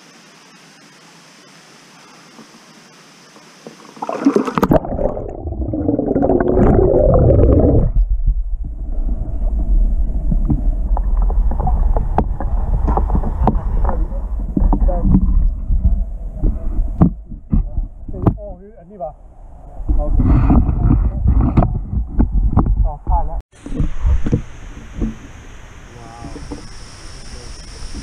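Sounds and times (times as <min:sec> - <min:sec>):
water sloshing and gurgling: 0:03.6 - 0:18.4.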